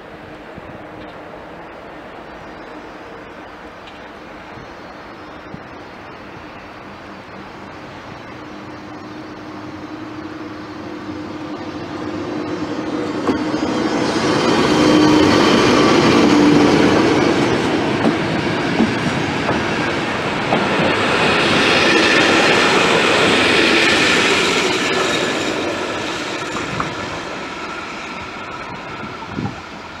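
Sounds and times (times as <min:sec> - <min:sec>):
electric locomotive hum: 0:00.0 - 0:30.0
train wheels clicking: 0:12.2 - 0:30.0.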